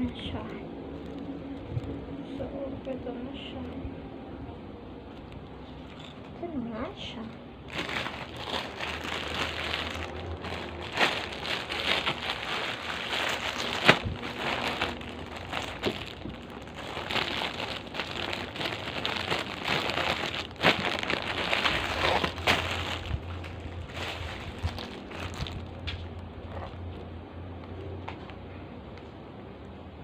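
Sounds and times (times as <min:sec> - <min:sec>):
plastic packaging crinkling: 0:07.7 - 0:26.2.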